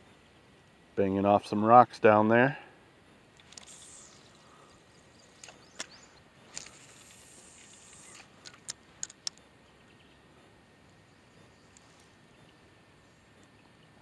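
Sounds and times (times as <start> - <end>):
light reel clicks: 3.3 - 4.4, 5.2 - 9.5
fishing reel whirring: 3.4 - 9.4.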